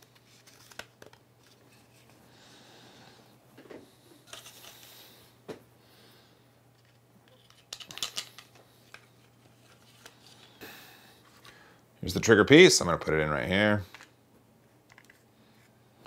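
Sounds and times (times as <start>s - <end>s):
plastic parts clicking: 6.8s - 9.1s, 14.9s - 15.2s.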